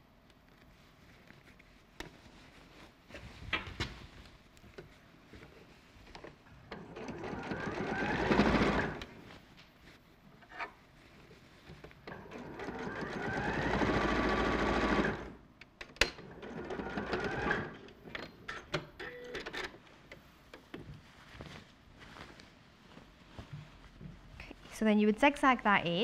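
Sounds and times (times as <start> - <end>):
sewing machine stitching: 6.7 - 9.1, 12.1 - 15.4, 16.2 - 18.0.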